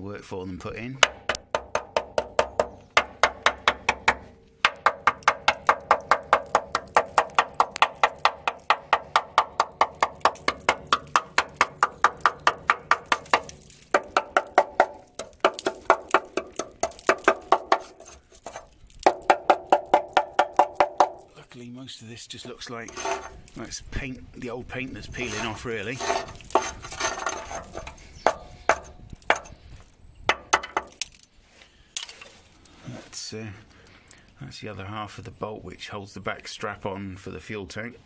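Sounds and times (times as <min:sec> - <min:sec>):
hammer knocking on steel rail: 0:01.0 - 0:16.3.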